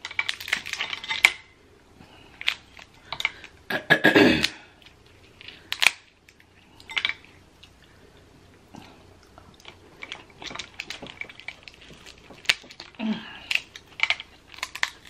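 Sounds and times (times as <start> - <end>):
crab shells cracking: 0.0 - 3.7, 4.4 - 15.0
chewing: 4.8 - 15.0.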